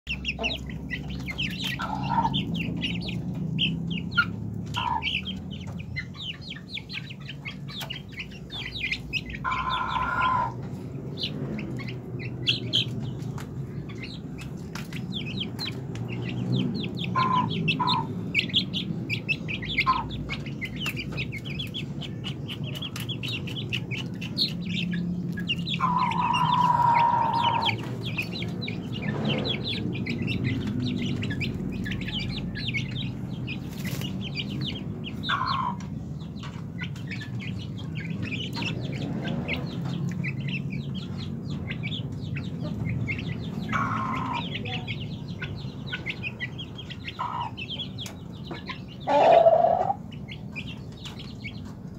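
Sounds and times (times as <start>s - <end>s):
chicks peeping: 0.0s - 51.9s
chick long call: 25.7s - 27.8s, 49.0s - 50.1s.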